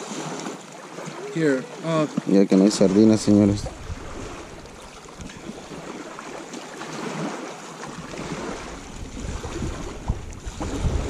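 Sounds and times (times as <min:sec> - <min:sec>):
wind rumble on microphone: 0:03.0 - 0:05.9, 0:07.9 - 0:11.0.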